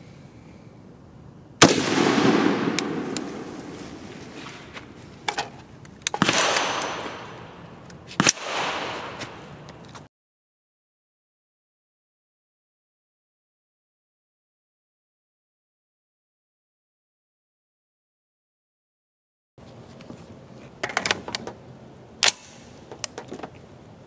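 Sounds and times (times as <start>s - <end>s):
rifle shots with long echo: 1.6s - 4.7s, 6.2s - 9.7s.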